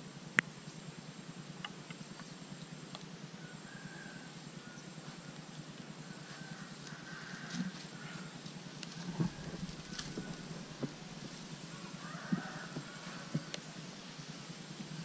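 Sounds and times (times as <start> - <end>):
steady low hum: 0.0 - 15.0
faint clicks: 8.8 - 11.5.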